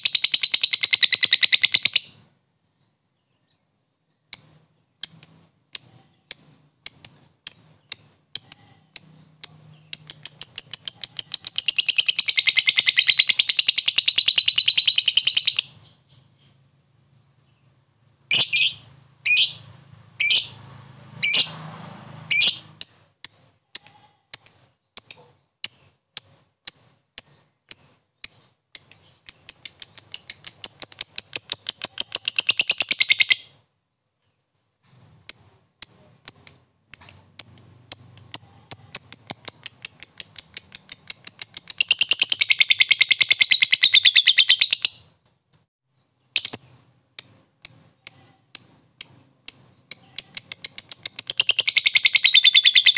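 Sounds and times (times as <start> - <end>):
lovebird chattering trill: 0.0 - 2.3, 4.3 - 16.6, 18.3 - 19.6, 22.3 - 33.6, 34.8 - 45.1, 46.3 - 52.9
lovebird chirps: 0.0 - 2.3, 3.2 - 16.8, 17.4 - 20.6, 21.2 - 21.6, 22.3 - 45.2, 46.0 - 52.9.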